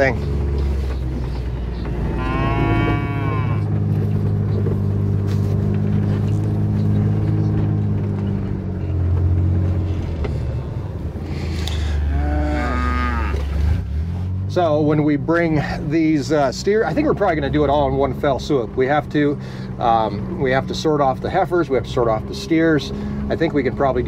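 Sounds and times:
vehicle engine idling: 0:00.0 - 0:24.0
cattle mooing: 0:01.9 - 0:04.0, 0:11.8 - 0:13.7.

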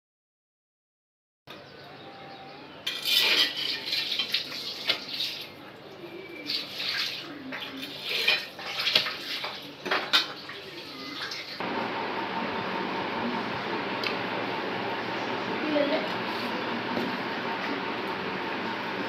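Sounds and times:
dishes clattering: 0:02.9 - 0:05.2, 0:07.5 - 0:10.6.

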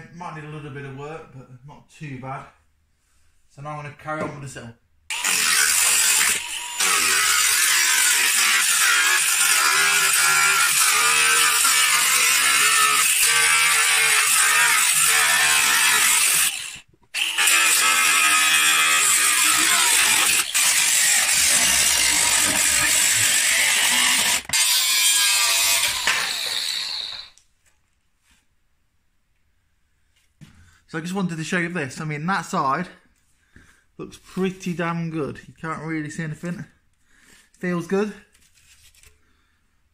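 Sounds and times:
angle grinder cutting steel: 0:05.1 - 0:27.4.

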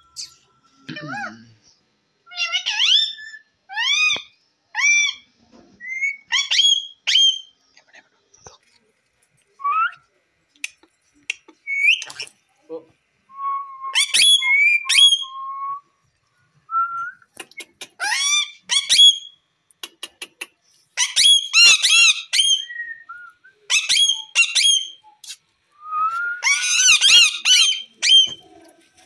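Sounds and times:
parakeets whistling and squawking: 0:02.3 - 0:07.5, 0:13.9 - 0:15.3, 0:18.0 - 0:19.3, 0:21.0 - 0:22.8, 0:23.7 - 0:25.4, 0:26.1 - 0:28.4.

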